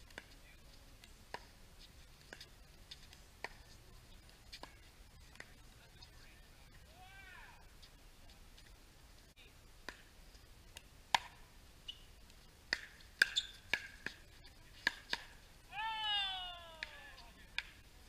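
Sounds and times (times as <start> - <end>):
faint high squeak: 13.3 - 13.7.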